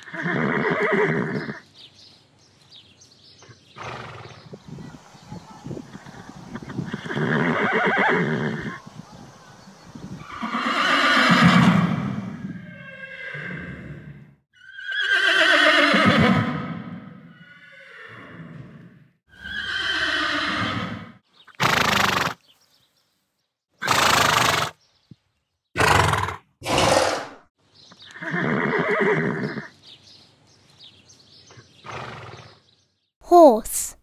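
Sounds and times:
horses whinnying: 0.0 - 1.6, 3.8 - 4.4, 5.9 - 8.8, 10.2 - 22.4, 23.8 - 24.8, 25.8 - 27.4, 28.0 - 29.7, 31.8 - 32.6.

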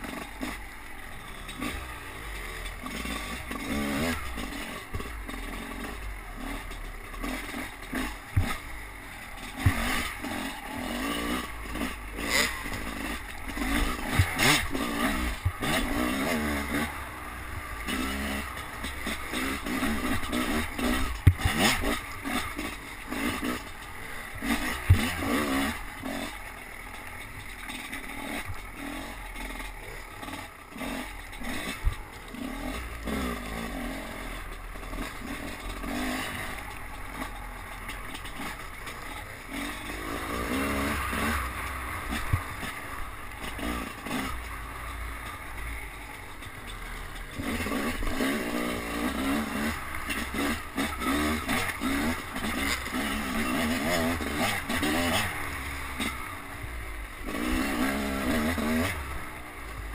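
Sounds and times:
dirt bike engine revving: 0.0 - 59.9
bike knocking on bumps: 7.9 - 8.7, 9.4 - 10.3, 11.1 - 16.1, 18.7 - 23.8, 24.4 - 25.7.

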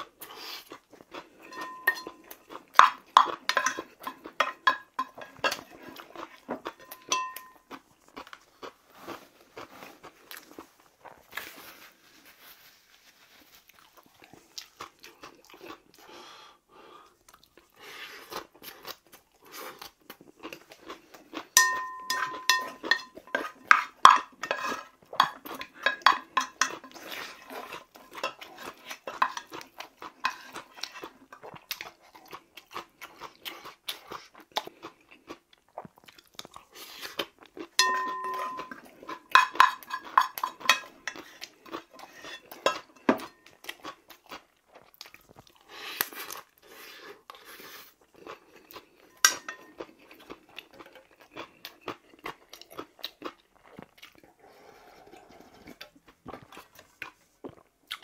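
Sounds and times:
chewing and crunching: 0.0 - 16.4, 17.0 - 58.0
spoon scraping inside pot: 1.4 - 6.1, 6.7 - 7.7, 21.6 - 29.6, 30.2 - 31.1, 37.8 - 43.4.

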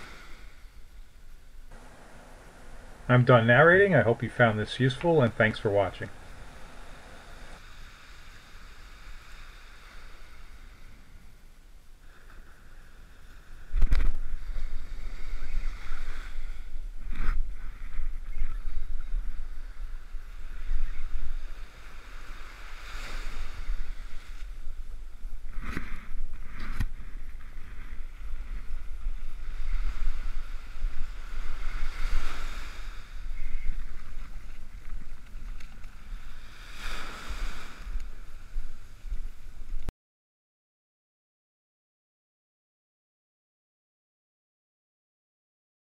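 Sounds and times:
surf washing onto beach: 1.7 - 11.4, 12.0 - 39.9
wind on microphone: 13.2 - 39.9.

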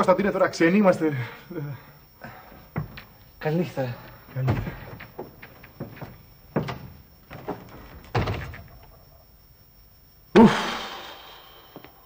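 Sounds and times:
wooden door thudding shut: 4.0 - 9.2.

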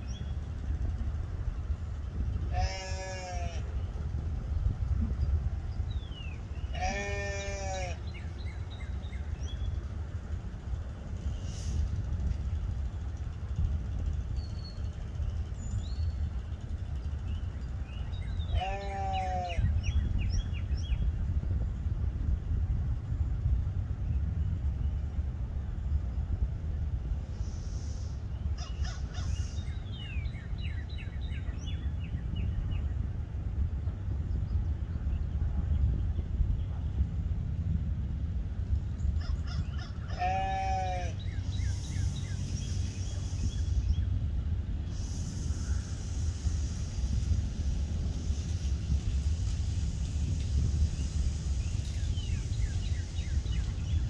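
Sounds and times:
wind rumble on microphone: 0.0 - 54.0
sheep bleating: 2.5 - 3.7, 6.7 - 8.0, 18.5 - 19.6, 40.1 - 41.2
small birds chirping: 14.0 - 21.1, 39.0 - 54.0
pitched animal call: 39.5 - 41.2.

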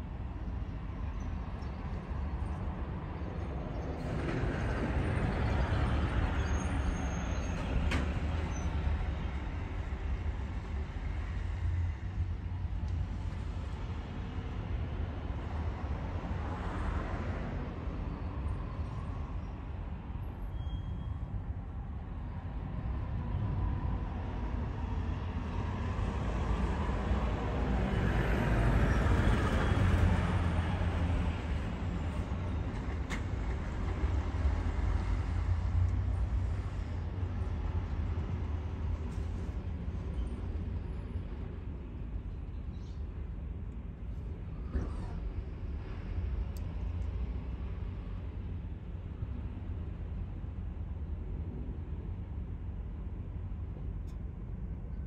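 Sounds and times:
distant traffic: 0.0 - 55.0.

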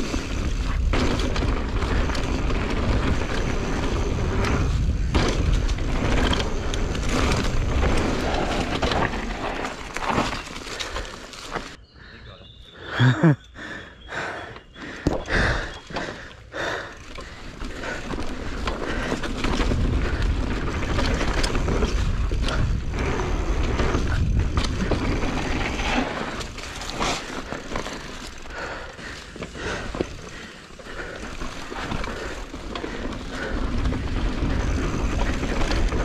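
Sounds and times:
bike knocking and rattling: 0.0 - 11.8, 14.8 - 36.0
tyres rolling on dirt: 0.0 - 11.8, 14.6 - 36.0
wind over microphone: 19.4 - 26.0.

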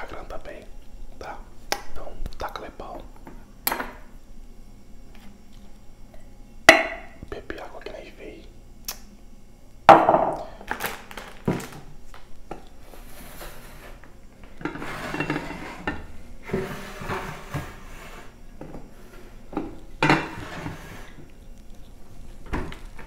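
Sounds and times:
metal pots clanking and scraping: 14.6 - 21.2.

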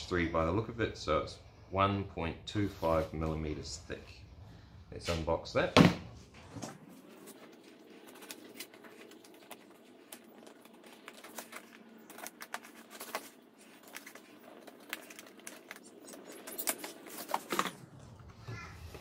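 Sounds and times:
cardboard handling: 6.6 - 17.9.

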